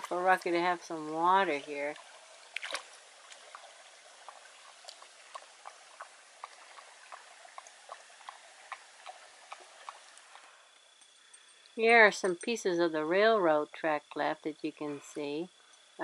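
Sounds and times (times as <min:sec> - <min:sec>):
dog lapping water: 0:02.0 - 0:10.4.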